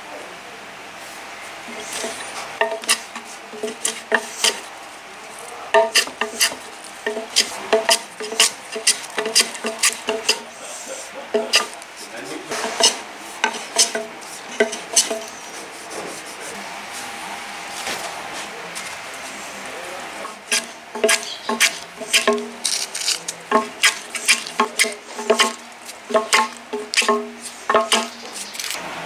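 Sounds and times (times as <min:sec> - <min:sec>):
hand plane shaving wood: 0:01.7 - 0:04.7, 0:05.8 - 0:16.6, 0:20.3 - 0:28.8.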